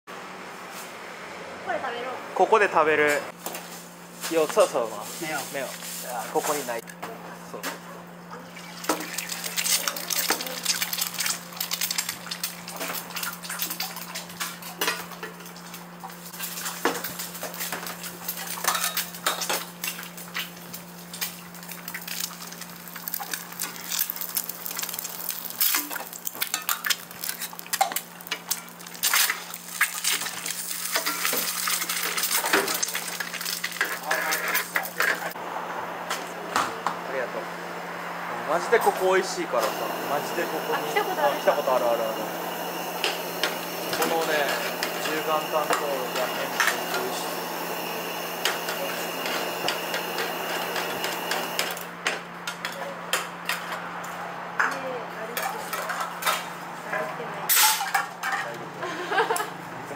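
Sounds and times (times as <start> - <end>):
steady low hum: 35.3 - 51.6.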